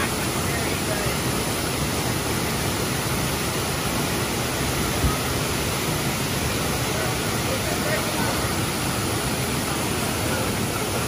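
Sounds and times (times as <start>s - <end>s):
steady rushing noise: 0.0s - 11.0s.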